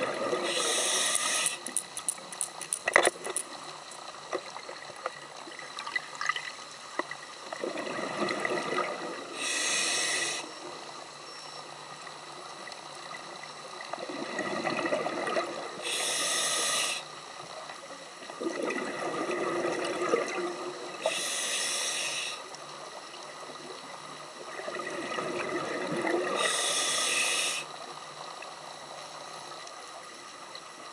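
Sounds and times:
regulator hiss: 0.0 - 2.1, 9.2 - 12.6, 15.7 - 17.7, 20.9 - 23.0, 26.2 - 29.6
exhaled air bubbling: 7.5 - 10.6, 13.9 - 17.0, 18.2 - 22.3, 23.4 - 27.6.

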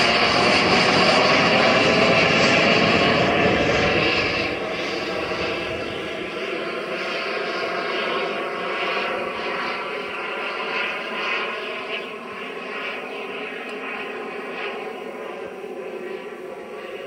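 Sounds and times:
model jet turbines rushing: 0.0 - 17.0.

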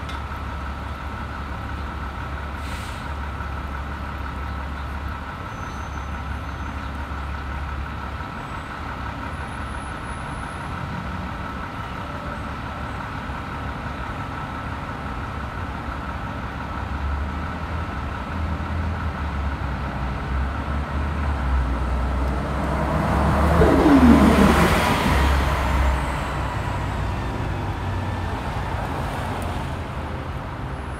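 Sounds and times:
street traffic: 0.0 - 30.9
bus passing with falling whine: 19.5 - 30.9
low engine hum: 21.0 - 30.2.

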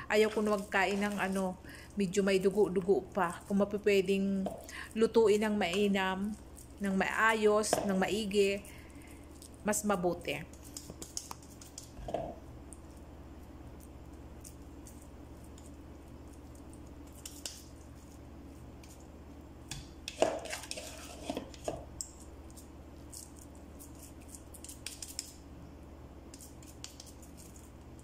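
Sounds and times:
hands patting minced meat: 10.4 - 25.4, 26.3 - 28.0
knocks and scrapes against bowl: 19.7 - 21.9.

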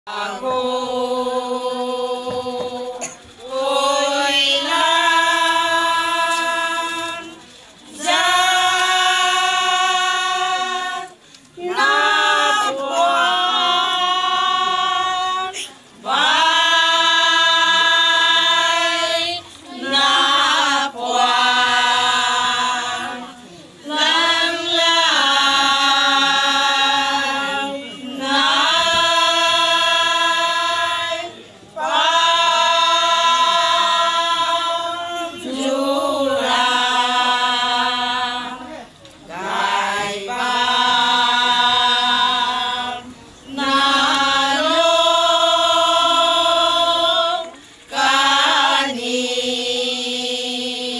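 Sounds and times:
women singing in unison: 0.0 - 50.9.

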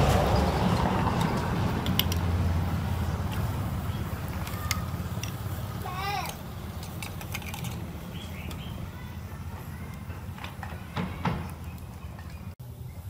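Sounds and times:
cooking clicks and knocks: 4.2 - 8.7.

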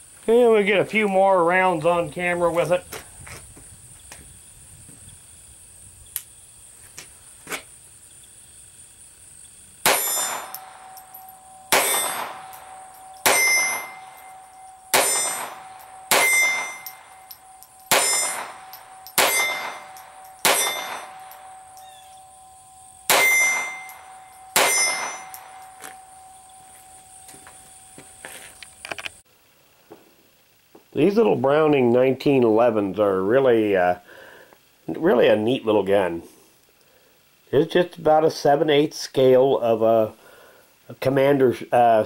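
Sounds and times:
pistol shots with metallic ring: 9.8 - 26.6.

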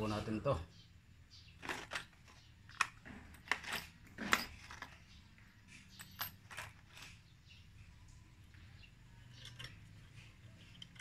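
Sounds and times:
light metallic clicks and clinks: 2.8 - 7.2, 9.2 - 11.0.

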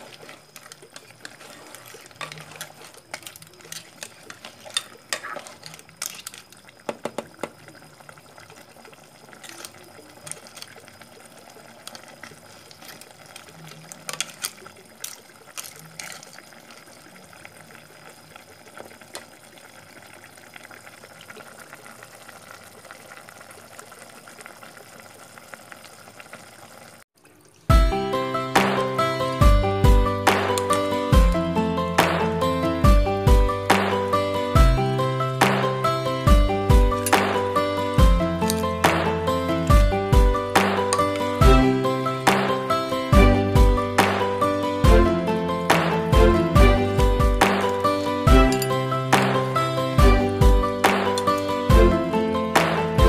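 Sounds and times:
spatula clinking and scraping pot: 0.0 - 7.0, 11.8 - 16.4
soup simmering and bubbling: 0.0 - 53.0.

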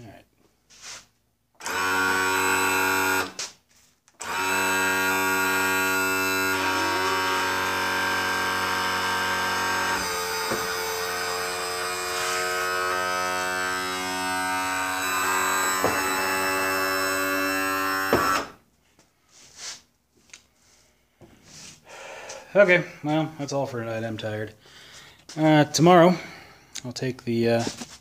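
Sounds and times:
electric tilt motor running: 1.6 - 3.4, 4.2 - 18.6.

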